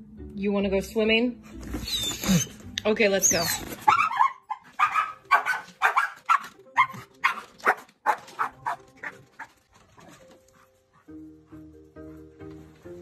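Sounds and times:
dog barking and yipping: 0:03.3 - 0:10.2.

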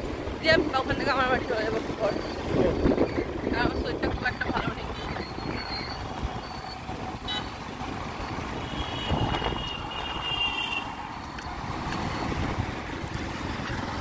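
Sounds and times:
motorcycle engine and wind rumble: 0:00.0 - 0:14.0
vehicle horn: 0:07.2 - 0:07.6, 0:08.6 - 0:11.0.

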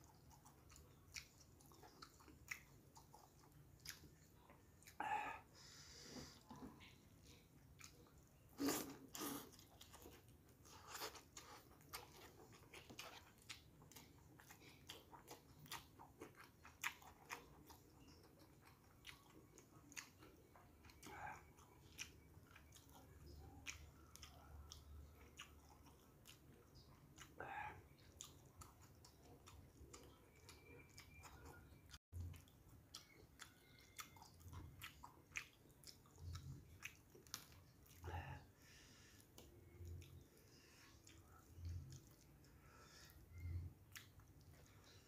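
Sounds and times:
person chewing: 0:00.0 - 0:45.0.

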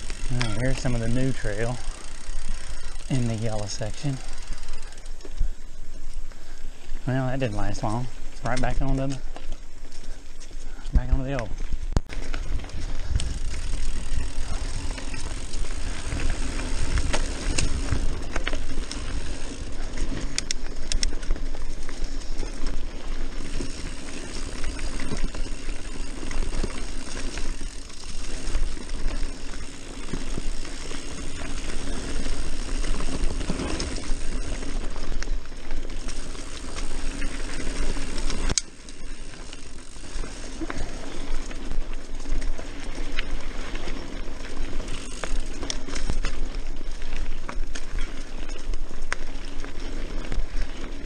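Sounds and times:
bike rattling and clicking: 0:00.0 - 0:51.0
tyres rolling on dirt: 0:00.0 - 0:51.0
wind rumbling on microphone: 0:09.3 - 0:38.6.

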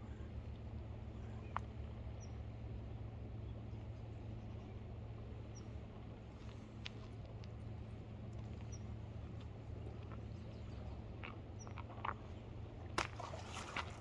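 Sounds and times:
river flowing: 0:05.8 - 0:14.0.

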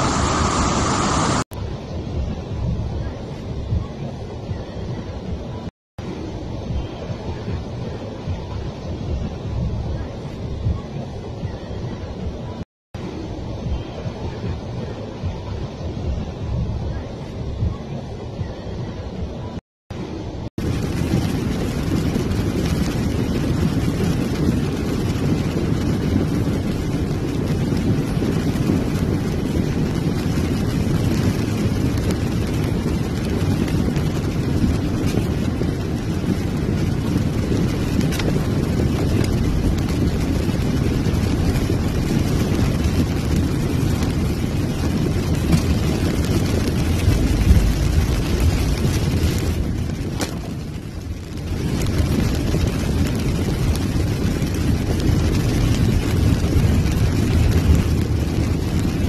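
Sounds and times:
floodwater washing against car: 0:00.0 - 0:01.4, 0:20.6 - 0:59.0
car engine rumble: 0:00.0 - 0:59.0.

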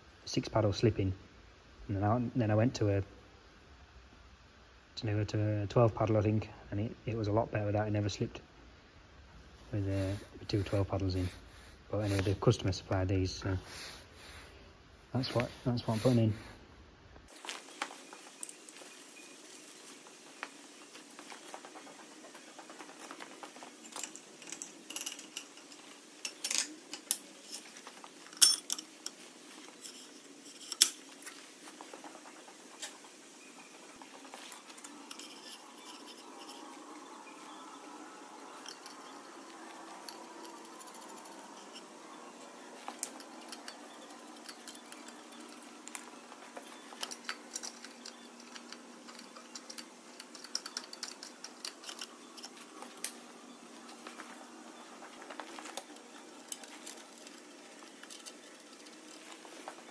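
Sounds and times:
metallic clinks of parts and tools: 0:22.3 - 0:31.2, 0:38.4 - 0:59.9.

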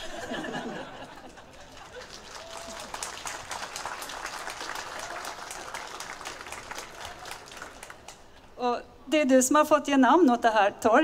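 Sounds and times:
audience applauding: 0:00.5 - 0:08.3.

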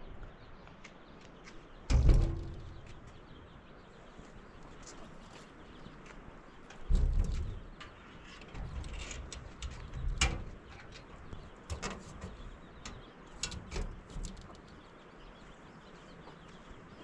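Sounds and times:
sheet-metal door clanking: 0:01.9 - 0:03.2, 0:06.8 - 0:14.6.

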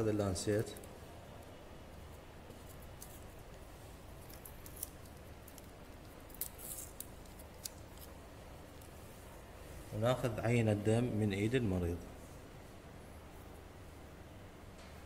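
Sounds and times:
small clicks and crinkles: 0:00.6 - 0:09.2.

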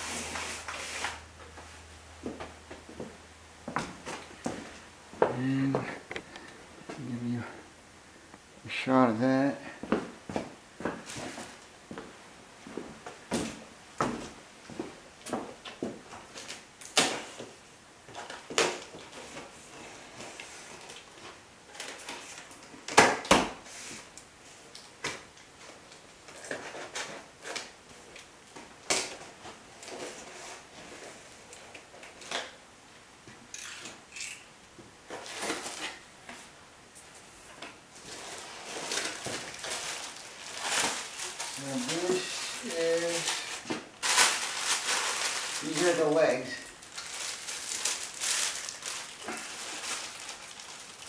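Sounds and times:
packing rustle: 0:38.0 - 0:51.0.

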